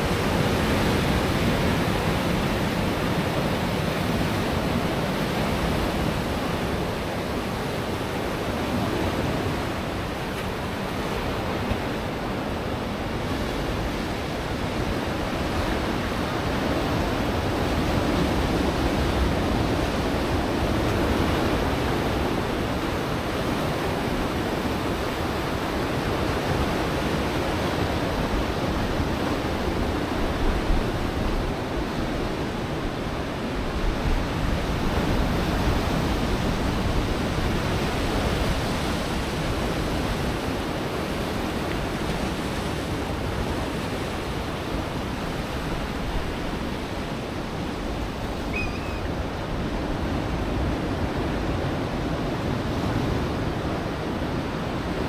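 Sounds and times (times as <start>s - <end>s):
ocean surf on rocky shore: 0.0s - 55.0s.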